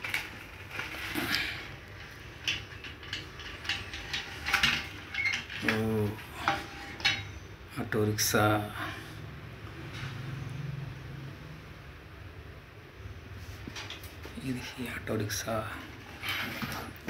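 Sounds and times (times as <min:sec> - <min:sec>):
plastic toy wheels scraping and clicking: 0:00.0 - 0:07.4, 0:14.8 - 0:17.0.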